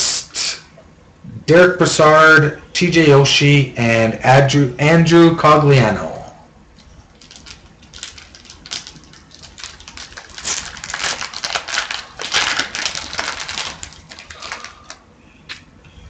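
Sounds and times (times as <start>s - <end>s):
wrapper and cards crackling: 7.1s - 15.0s.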